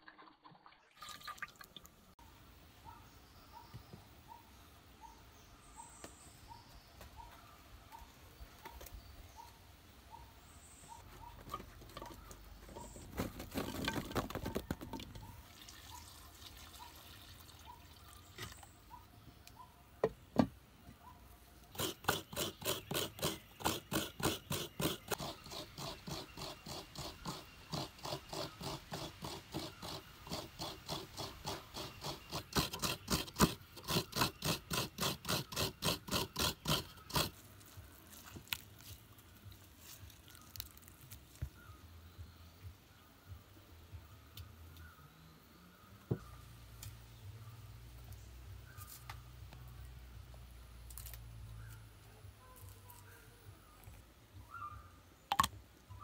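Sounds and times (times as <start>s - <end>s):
water pouring into a pot: 0.0s - 2.0s, 15.4s - 18.0s
coconut grating rasping: 21.7s - 38.6s.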